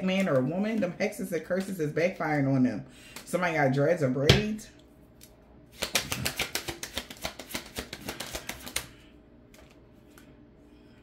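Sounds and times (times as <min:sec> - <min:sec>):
deck of cards shuffling: 0:05.7 - 0:10.3.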